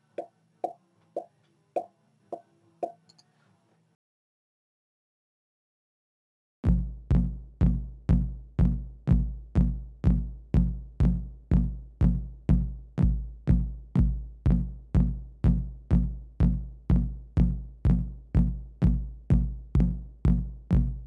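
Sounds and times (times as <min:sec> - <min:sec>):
drum machine kick drum beating: 0:06.6 - 0:21.0.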